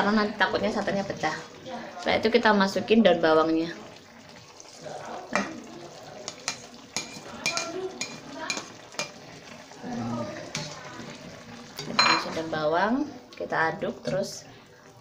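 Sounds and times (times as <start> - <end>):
stew boiling with soft sizzle: 0.0 - 15.0
utensils clicking on plate and pan: 6.3 - 9.2.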